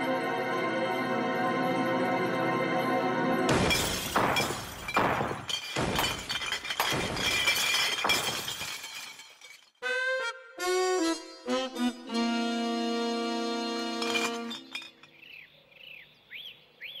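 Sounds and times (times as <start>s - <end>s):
music: 0.0s - 4.3s, 9.8s - 14.8s
glass shattering: 3.5s - 9.8s, 13.9s - 15.2s.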